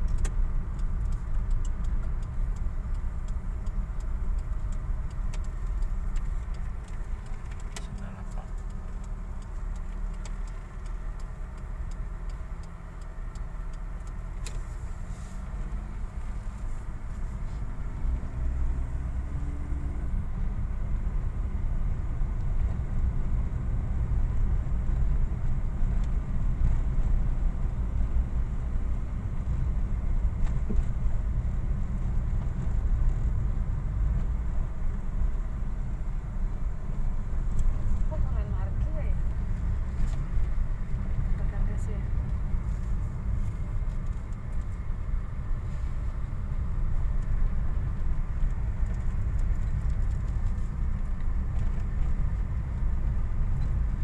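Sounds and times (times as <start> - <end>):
faint clicks: 0.0 - 17.3
engine and tyres drone: 0.0 - 54.0.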